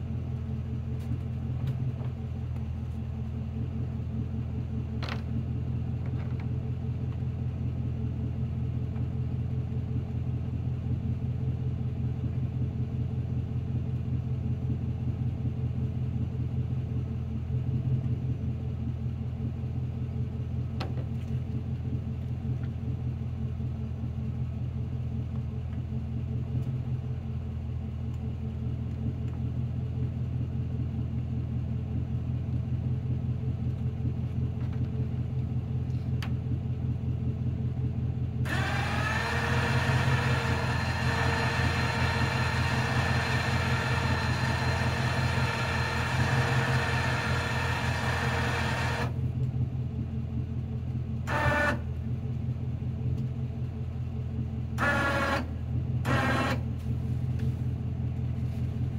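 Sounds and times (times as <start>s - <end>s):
pickup truck engine idling: 27.0s - 58.9s
electric winch whining: 38.5s - 49.2s, 51.3s - 51.9s, 54.8s - 56.6s.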